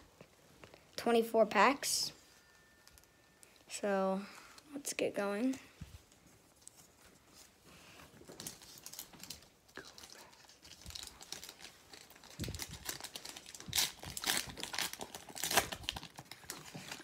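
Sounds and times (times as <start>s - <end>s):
card pack wrapper crinkling: 8.3s - 17.0s.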